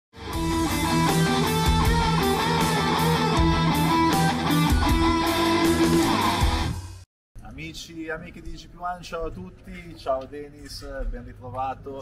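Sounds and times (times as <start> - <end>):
rock guitar theme music: 0.2 - 7.0.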